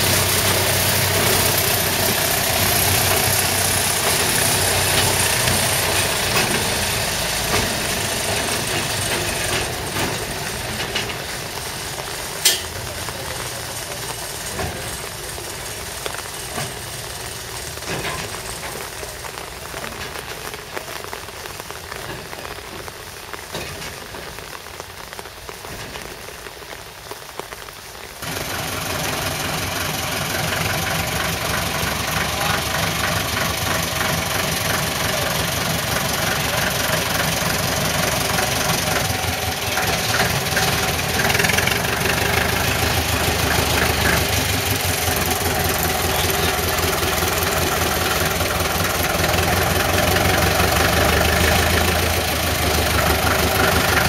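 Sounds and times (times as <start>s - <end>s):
diesel locomotive engine running: 0.0s - 24.4s, 28.2s - 54.0s.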